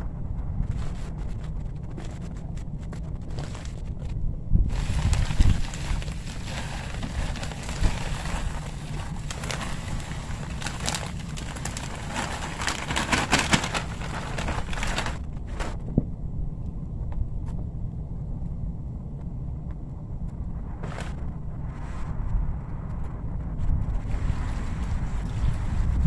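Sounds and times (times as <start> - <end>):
soil pouring from a bag: 4.7 - 15.7
plastic bag crinkling: 4.7 - 15.8.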